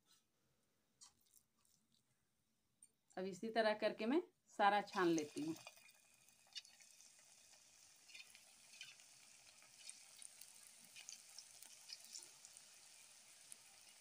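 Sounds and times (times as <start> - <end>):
batter sizzling in hot oil: 4.8 - 14.0
oil crackles and pops: 5.0 - 14.0.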